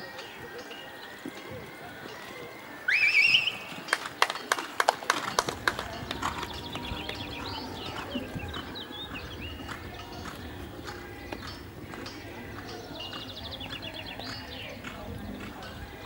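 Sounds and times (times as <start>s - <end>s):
rising whistle-like call: 2.9s - 3.9s
horse hoofbeats on grass: 3.0s - 16.0s.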